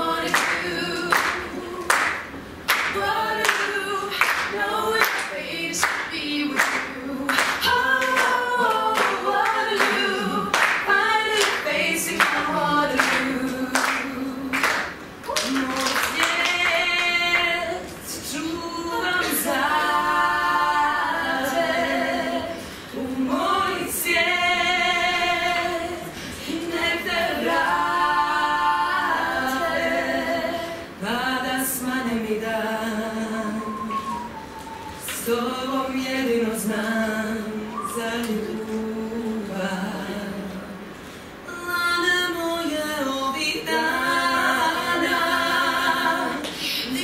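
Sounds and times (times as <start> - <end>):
women singing a cappella: 0.0 - 47.0.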